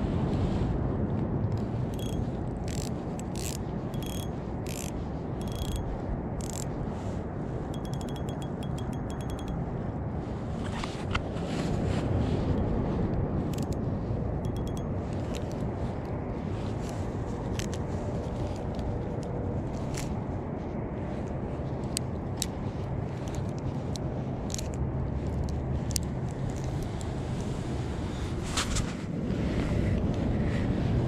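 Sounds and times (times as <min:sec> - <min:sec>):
steady low rumble: 0:00.0 - 0:31.0
fishing reel clicks: 0:01.9 - 0:06.7, 0:07.8 - 0:09.6, 0:13.5 - 0:13.8, 0:14.4 - 0:15.4.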